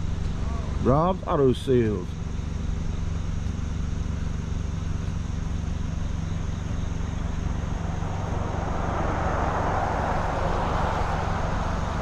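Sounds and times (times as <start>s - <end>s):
car engine humming: 0.0s - 12.0s
rushing noise: 7.2s - 12.0s.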